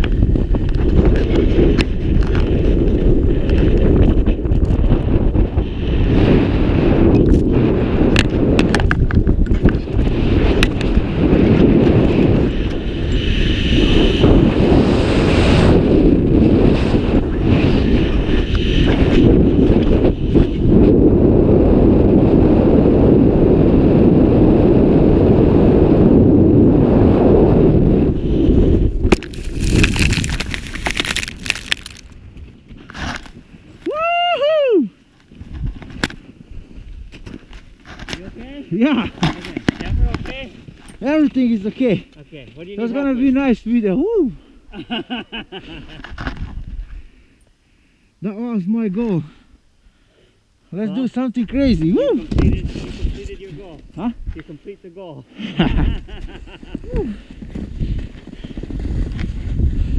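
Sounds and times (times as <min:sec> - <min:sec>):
wind on microphone: 0:00.0 - 0:42.1, 0:43.0 - 0:47.2, 0:51.4 - 0:54.8, 0:55.4 - 0:59.9
skis carving on snow: 0:09.8 - 0:21.0, 0:28.2 - 0:32.0
skis scraping on snow: 0:29.3 - 0:32.0.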